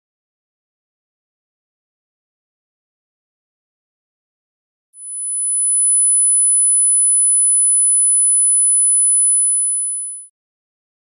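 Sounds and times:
high sine test tone: 5.0 - 10.3.

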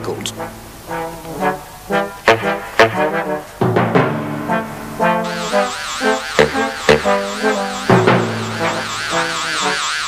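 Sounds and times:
cartoon music with brass: 0.2 - 10.0
high warbling electronic tone: 5.2 - 10.0.

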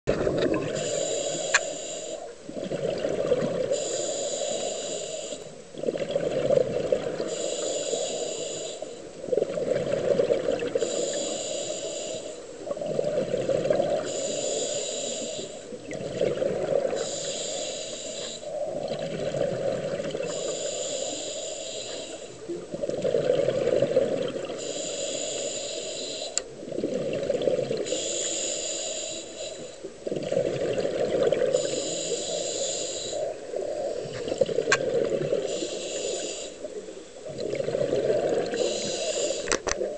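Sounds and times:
bubbling exhale underwater: 0.1 - 1.6, 2.5 - 4.8, 5.8 - 8.2, 9.2 - 11.2, 12.0 - 14.2, 15.7 - 17.4, 18.3 - 20.6, 22.5 - 24.9, 26.5 - 28.0, 30.0 - 32.1, 33.0 - 36.4, 37.2 - 39.9
scuba regulator hissing inhale: 0.7 - 2.4, 3.6 - 5.6, 7.2 - 9.1, 10.7 - 12.5, 14.0 - 15.8, 16.9 - 18.8, 20.2 - 22.4, 24.5 - 26.4, 27.8 - 29.9, 31.5 - 34.3, 35.3 - 36.8, 38.1 - 39.7.

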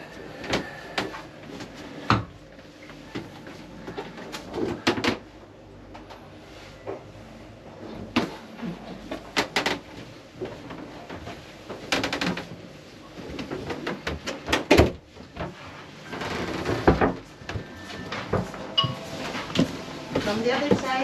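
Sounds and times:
footsteps: 16.7 - 21.0.

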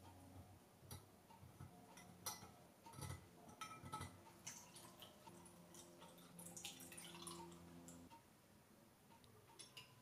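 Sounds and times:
faint metal mold clinks: 0.0 - 6.2.

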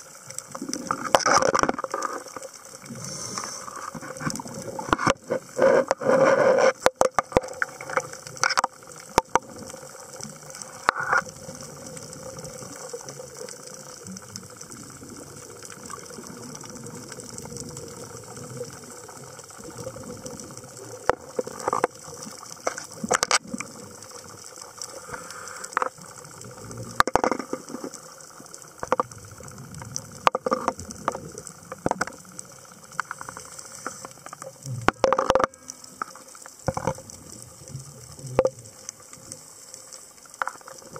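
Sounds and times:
clicks and crackle: 0.0 - 40.9
steady underwater hiss: 0.0 - 40.9
diver exhaling: 2.9 - 4.2.

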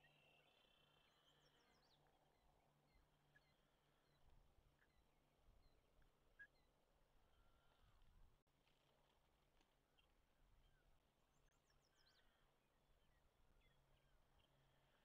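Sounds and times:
faint bird chirps: 0.0 - 8.1.

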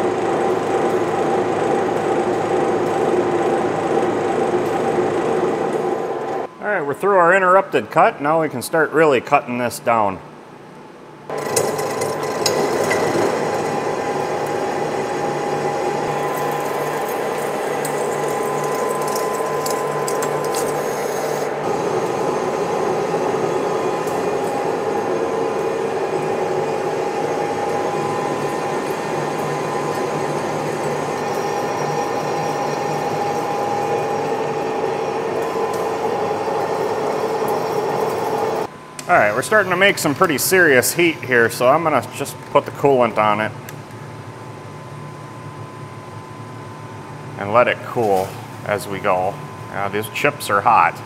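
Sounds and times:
lathe gear whine: 0.0 - 6.6, 11.3 - 43.5
crackling metal chips: 16.1 - 21.4.

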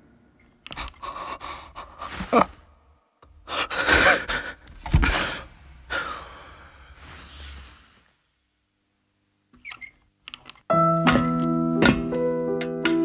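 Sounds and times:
person gasping: 0.7 - 2.8, 3.4 - 7.6.

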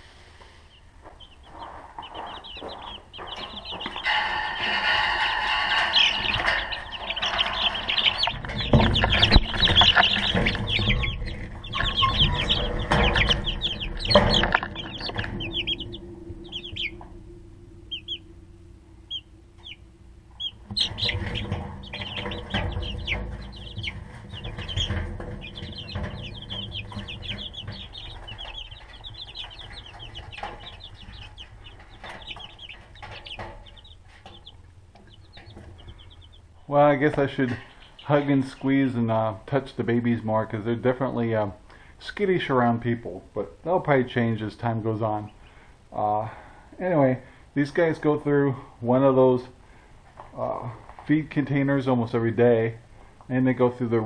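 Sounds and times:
chicks peeping: 0.0 - 54.0
plastic rustling and knocking: 6.2 - 15.4.

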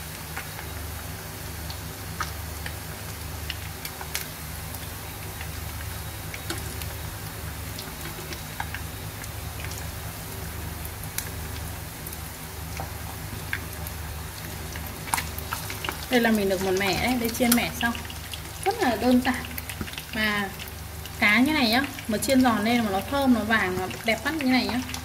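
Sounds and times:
fish deep-frying in hot oil: 0.0 - 25.0
oil popping and crackling: 0.0 - 25.0.

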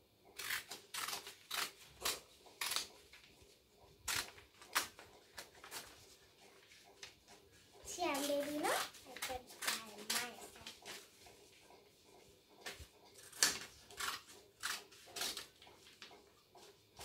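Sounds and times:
scissors snipping paper: 0.4 - 3.3, 4.0 - 6.0, 8.0 - 11.0, 12.6 - 16.3.

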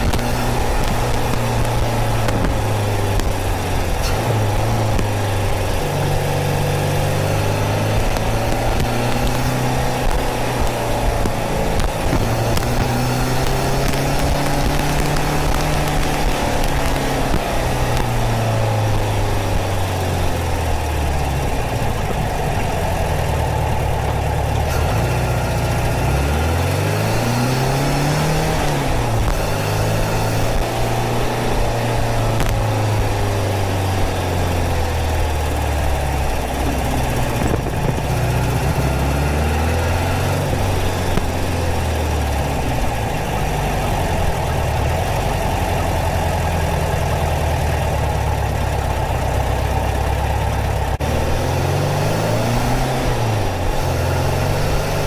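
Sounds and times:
car engine revving: 0.0 - 55.0
wind and road noise: 0.0 - 55.0.

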